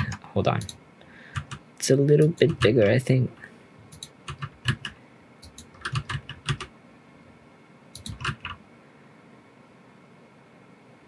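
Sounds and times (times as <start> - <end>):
keyboard keys clicking: 0.0 - 1.6, 2.2 - 3.0, 3.9 - 6.7, 8.0 - 8.6.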